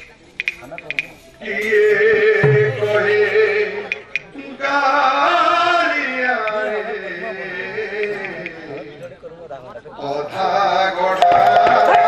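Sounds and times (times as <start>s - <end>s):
low barrel drum stroke: 2.3s - 4.3s.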